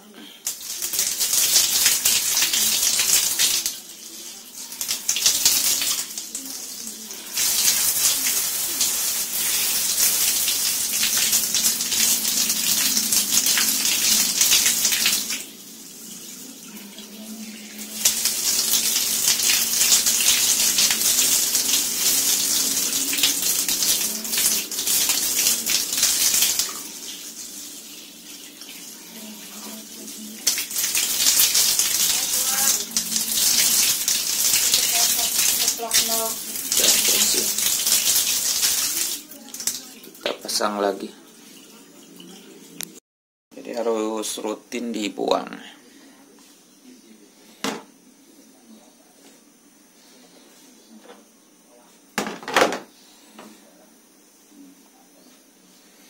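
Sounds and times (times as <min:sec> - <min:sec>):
hose water spraying and splashing: 0:00.4 - 0:40.7.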